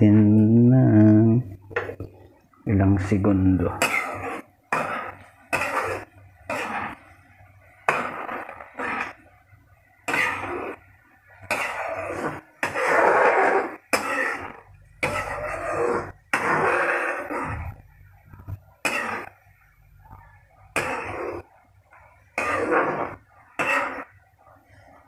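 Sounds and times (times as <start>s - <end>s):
metal ladle scraping a wok: 3.8s - 7.2s, 7.8s - 9.2s, 10.0s - 10.9s, 11.5s - 17.8s, 20.7s - 21.5s, 22.3s - 24.2s.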